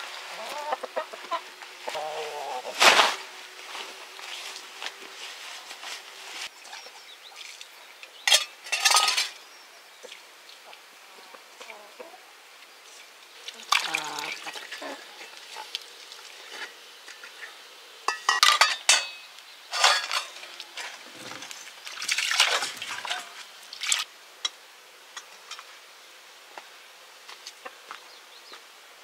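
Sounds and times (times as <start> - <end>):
water splashing and sloshing: 6.4 - 9.4, 13.4 - 16.7, 19.8 - 24.1
metal pots clinking: 8.2 - 9.4, 18.1 - 21.5.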